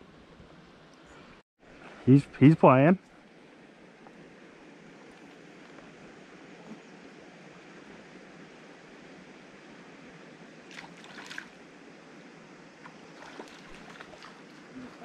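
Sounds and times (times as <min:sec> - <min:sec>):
creek water rushing: 0:01.6 - 0:15.0
sharp splashes: 0:10.7 - 0:11.6, 0:13.1 - 0:15.0.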